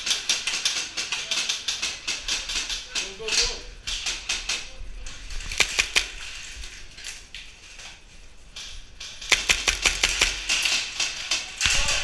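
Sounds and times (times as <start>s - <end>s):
airsoft guns firing: 5.5s - 6.5s, 9.2s - 12.0s.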